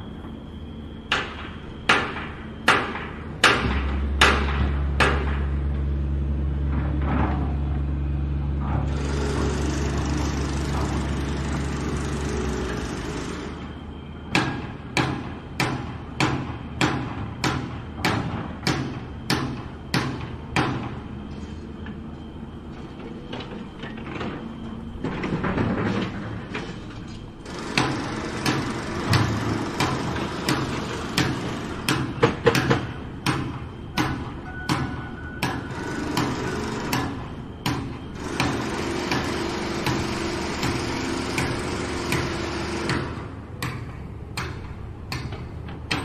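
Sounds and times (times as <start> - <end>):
machine low drone: 0.0 - 46.0
heavy hammer blows: 25.1 - 46.0.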